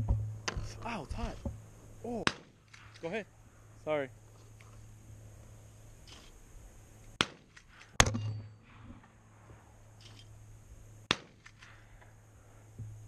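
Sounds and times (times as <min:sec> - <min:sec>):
rifle shots: 0:02.2 - 0:03.0, 0:07.2 - 0:08.3, 0:11.1 - 0:11.7.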